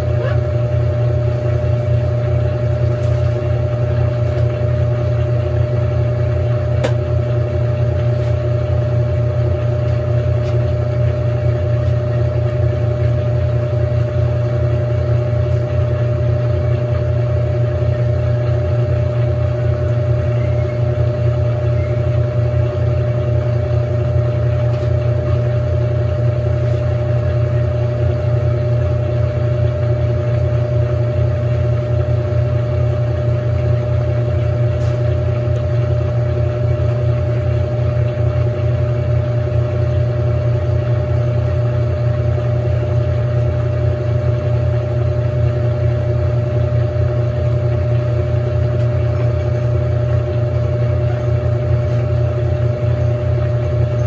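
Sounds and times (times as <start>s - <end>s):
washing machine spinning: 0.0s - 54.0s.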